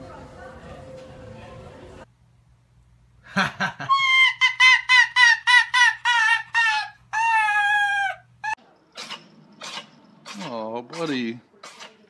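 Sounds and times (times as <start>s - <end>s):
dog yelping: 3.9s - 10.5s.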